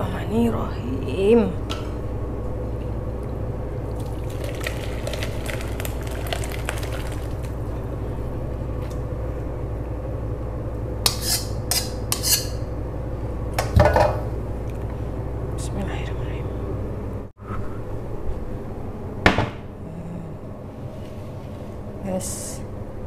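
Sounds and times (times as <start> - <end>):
metal utensil scraping metal bowls: 11.1 - 12.6.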